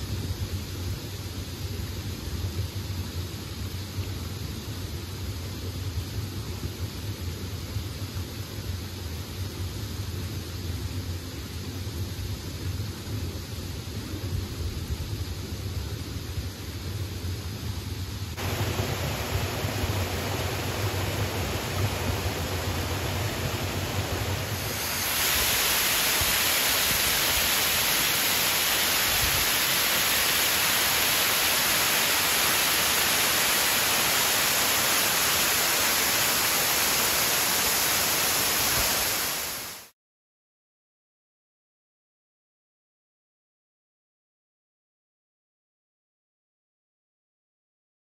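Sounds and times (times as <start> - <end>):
water rushing over waterfall: 18.4 - 39.9.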